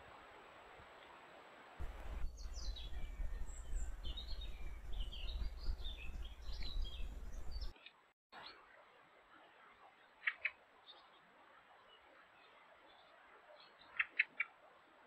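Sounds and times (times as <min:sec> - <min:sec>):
steady low rumble: 0:01.8 - 0:07.7
songbirds chirping: 0:01.8 - 0:15.0.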